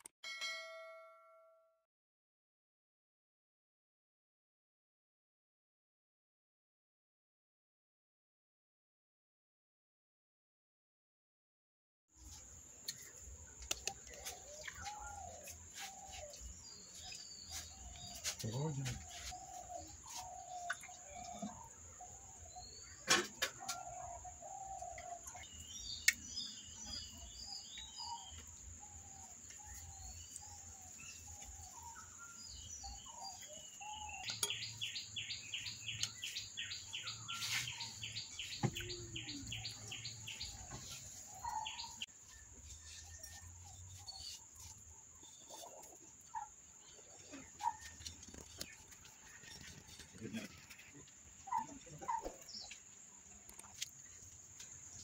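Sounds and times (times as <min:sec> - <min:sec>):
birds chirping: 0:12.2 - 0:55.0.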